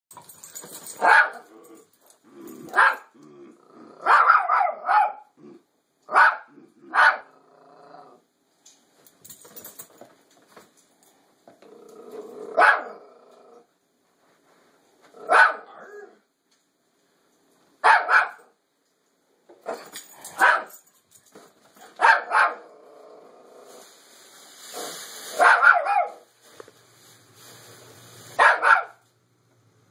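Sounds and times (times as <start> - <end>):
small dog barking: 1.0 - 1.4, 2.7 - 3.1, 4.0 - 5.3, 6.1 - 7.3, 12.6 - 13.0, 15.2 - 16.2, 17.8 - 18.5, 20.4 - 20.8, 22.0 - 22.6, 25.4 - 26.3, 28.4 - 29.0.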